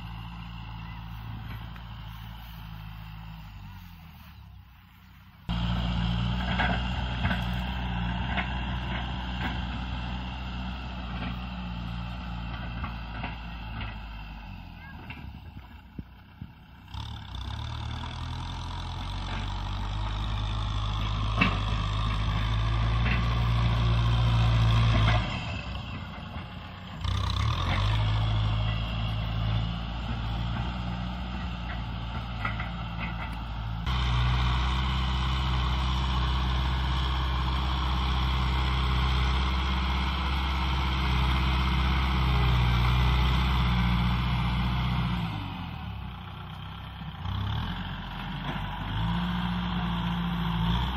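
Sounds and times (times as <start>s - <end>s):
blade pushing soil: 0.0s - 15.4s, 16.8s - 50.9s
tractor diesel engine under load: 0.0s - 50.9s.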